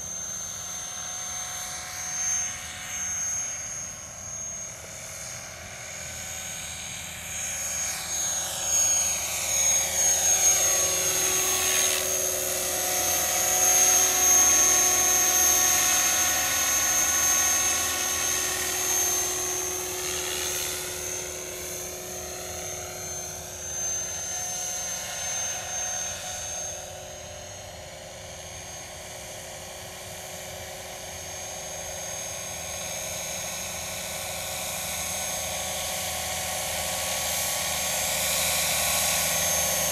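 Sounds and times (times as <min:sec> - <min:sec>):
model helicopter flying: 0:00.0 - 0:39.9.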